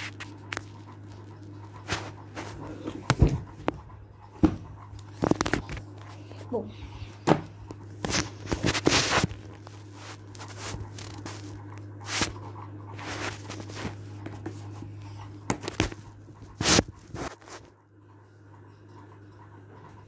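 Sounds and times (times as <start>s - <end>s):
phone handling rustles and scrapes: 0.0s - 3.8s, 8.0s - 14.8s, 15.5s - 17.7s
steady low hum: 0.0s - 20.0s.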